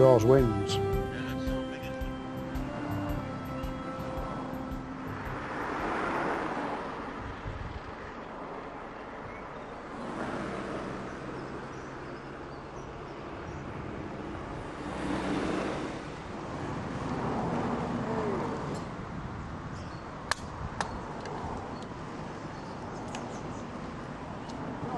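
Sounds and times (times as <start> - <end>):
music: 0.0 - 6.2
road traffic passing: 0.0 - 24.9.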